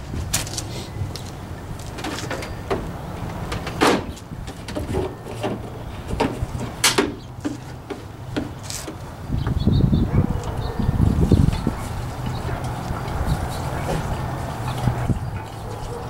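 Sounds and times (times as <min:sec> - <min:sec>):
knocks of objects handled on trailer: 0:01.8 - 0:09.6, 0:11.4 - 0:15.2.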